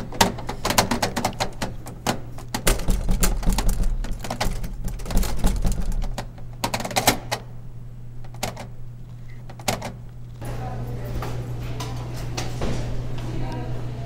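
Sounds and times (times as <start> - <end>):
door rattling in frame: 0.0 - 7.4.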